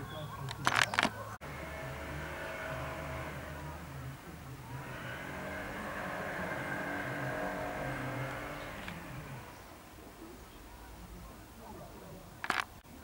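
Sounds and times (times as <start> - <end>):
vehicle engine running: 1.2 - 11.1.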